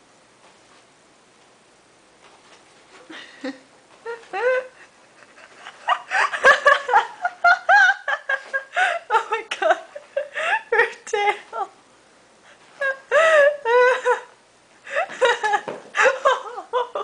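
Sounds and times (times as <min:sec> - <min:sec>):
people laughing and giggling: 0:03.1 - 0:10.6, 0:14.9 - 0:17.0.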